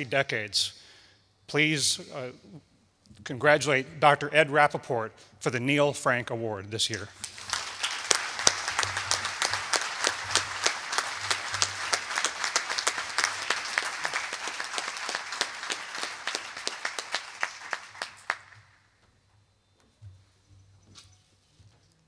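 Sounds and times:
audience clapping: 6.9s - 18.8s.

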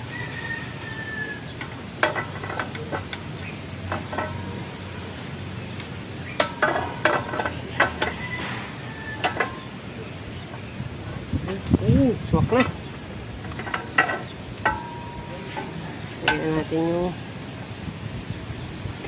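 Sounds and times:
metal exhaust pipe clinking: 1.6s - 5.2s, 6.2s - 9.7s, 13.4s - 16.8s.

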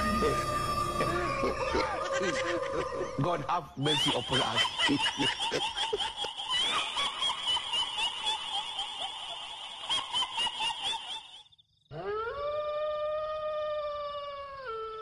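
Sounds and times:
long rising wail: 0.0s - 3.2s
shrill cackling laughter: 1.0s - 12.6s.

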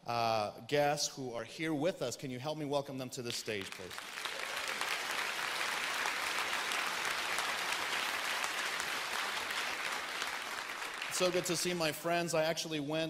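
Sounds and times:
crowd applauding: 3.6s - 12.0s.

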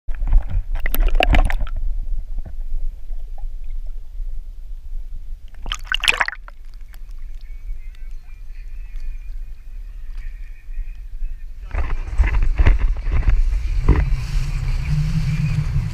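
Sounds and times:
muffled underwater rumble: 0.1s - 15.9s
water splashes: 0.7s - 4.0s, 5.5s - 7.6s.

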